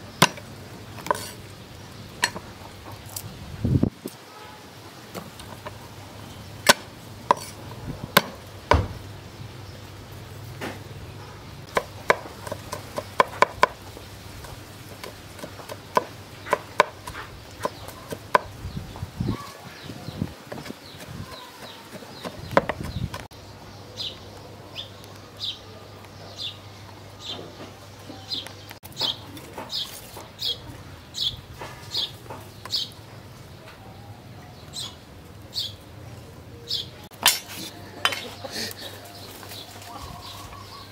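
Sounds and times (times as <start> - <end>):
bird chirping: 15.0 - 40.9.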